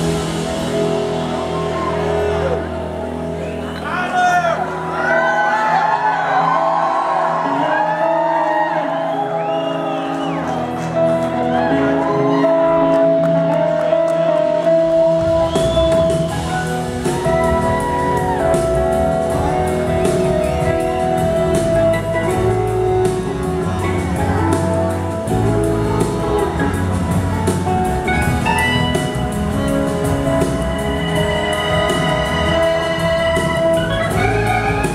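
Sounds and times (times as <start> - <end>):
bass guitar: 0.0 - 4.0, 9.0 - 34.9
drums: 0.0 - 7.2, 7.8 - 34.9
second electric guitar: 0.0 - 34.9
electric slide guitar lead: 10.6 - 34.9.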